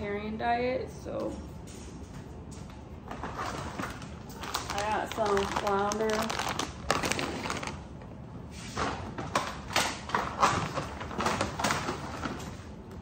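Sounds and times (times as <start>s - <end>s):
shopping bag rustling: 3.1s - 9.1s.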